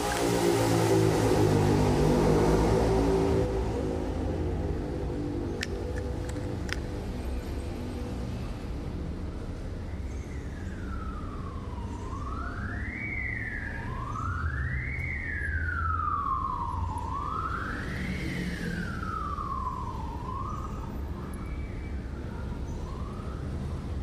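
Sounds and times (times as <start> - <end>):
siren wailing: 10.0 - 24.0.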